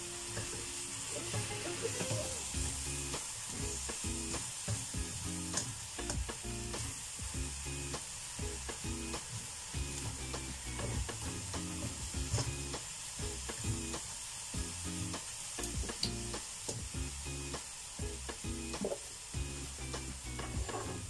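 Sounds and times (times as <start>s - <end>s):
food sizzling in a wok: 0.0s - 21.0s
spatula knocking and scraping wok: 20.0s - 21.0s.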